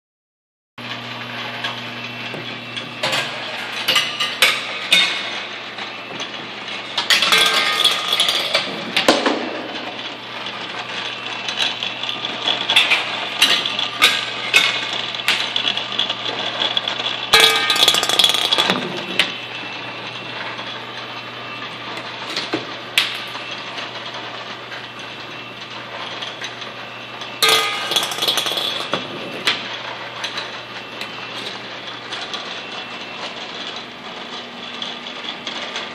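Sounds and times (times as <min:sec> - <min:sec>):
metal mechanisms clattering: 0:01.6 - 0:35.9.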